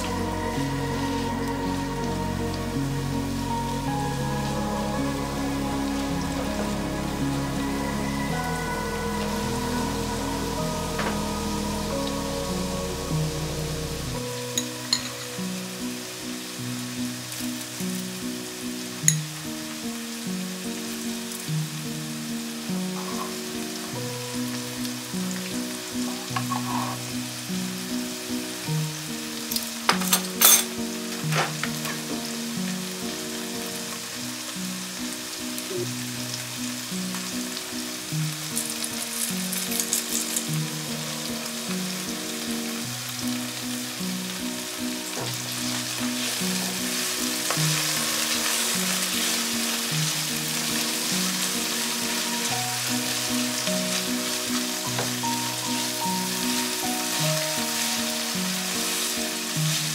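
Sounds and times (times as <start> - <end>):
onions sizzling in hot oil: 0.0 - 59.9
soft background music: 0.0 - 59.9.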